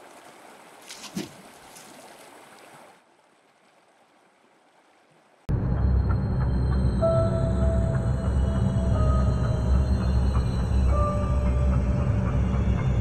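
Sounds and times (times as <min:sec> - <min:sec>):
rushing water: 0:00.0 - 0:05.5.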